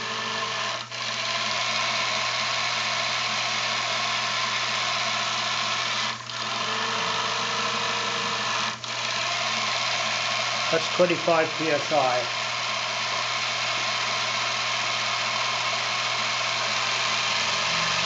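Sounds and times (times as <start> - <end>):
miniature steam engine running: 0.0 - 18.0.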